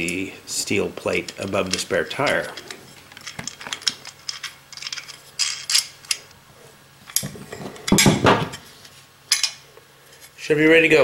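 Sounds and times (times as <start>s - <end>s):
metal parts and tools clinking: 1.1s - 6.3s.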